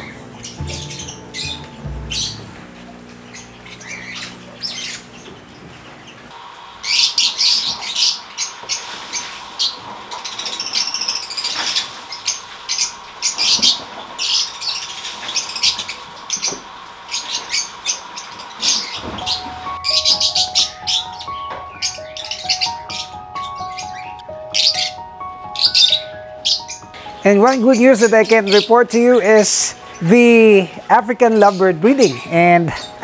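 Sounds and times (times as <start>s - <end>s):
background music: 0.0s - 3.3s, 19.2s - 33.0s
lovebirds chattering and chirping: 0.0s - 33.0s.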